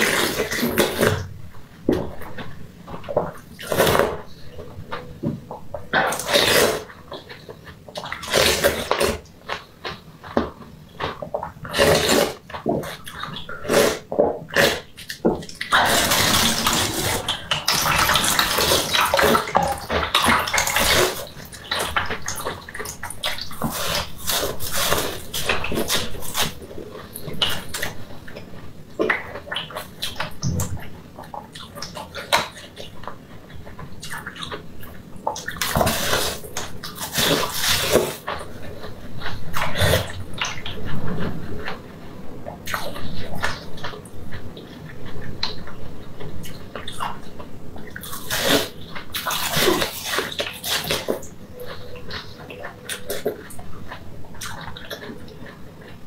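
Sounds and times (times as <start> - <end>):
icy crunches and bites: 11.0 - 28.0.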